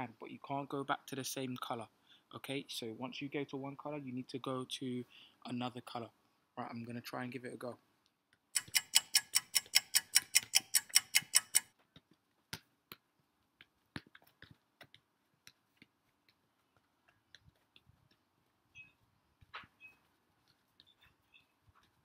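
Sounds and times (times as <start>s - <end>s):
fast even ticking: 8.6s - 11.7s.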